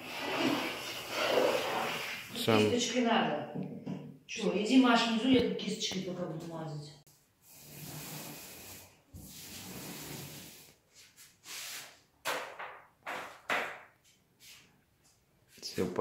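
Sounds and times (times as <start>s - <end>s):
wallpaper scraping hiss: 0.0s - 2.8s, 7.2s - 12.0s.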